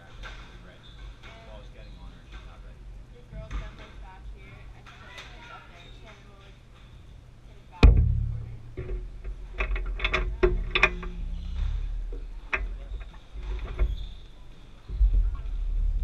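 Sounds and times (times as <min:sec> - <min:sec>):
sharp knock: 0:07.8 - 0:09.0.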